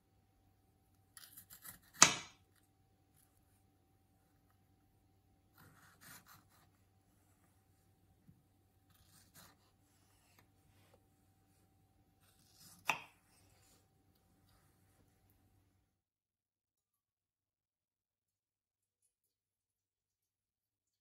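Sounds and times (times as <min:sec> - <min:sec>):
knife slicing strawberries: 0:01.1 - 0:02.6, 0:05.5 - 0:06.8, 0:08.9 - 0:11.0, 0:12.2 - 0:14.8
knife tapping wooden board: 0:02.0 - 0:02.4, 0:12.8 - 0:13.2.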